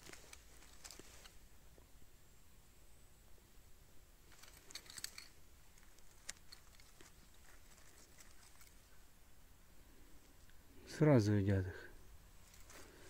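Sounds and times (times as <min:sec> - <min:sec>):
faint crackles: 0:00.0 - 0:01.9, 0:04.2 - 0:09.1, 0:12.4 - 0:13.0.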